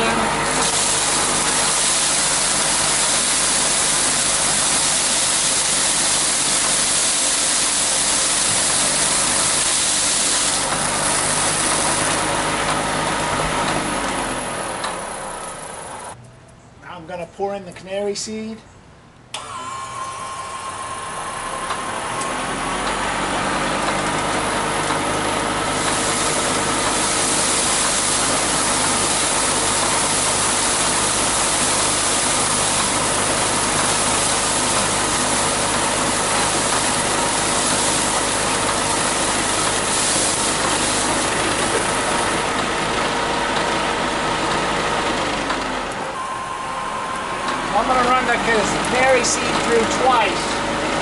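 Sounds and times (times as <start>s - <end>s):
seed hissing against housing: 0.0s - 14.0s, 25.7s - 42.6s
electric motor whining: 0.0s - 16.2s, 19.4s - 51.0s.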